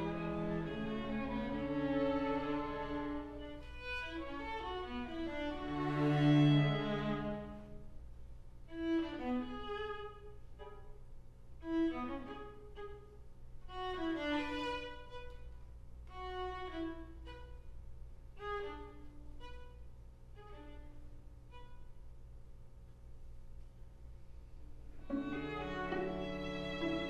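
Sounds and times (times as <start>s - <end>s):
string quartet playing: 0.0s - 7.8s, 25.0s - 27.0s.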